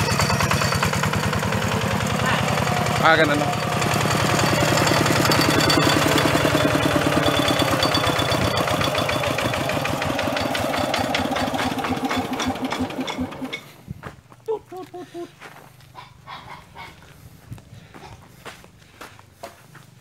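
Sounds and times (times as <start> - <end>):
diesel engine chugging: 0.0 - 13.9.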